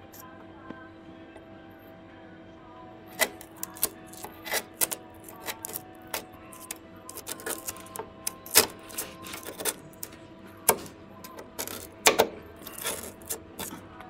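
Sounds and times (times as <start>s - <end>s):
sharp clicks and knocks: 3.2s - 13.8s.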